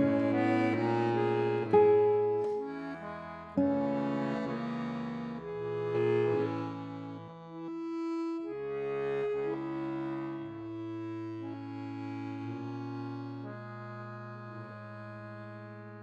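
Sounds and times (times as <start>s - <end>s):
accordion playing held chords: 0.0s - 16.0s.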